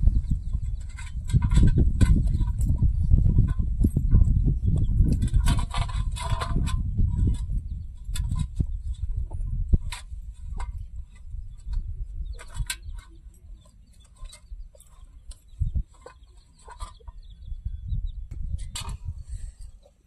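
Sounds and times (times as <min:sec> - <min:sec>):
low rumble: 0:00.0 - 0:12.2
chickens clucking: 0:00.2 - 0:18.1.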